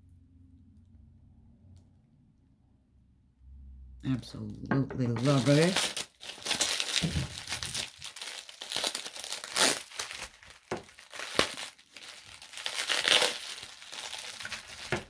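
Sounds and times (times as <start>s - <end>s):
bubble wrap crinkling and tearing: 5.1s - 15.0s.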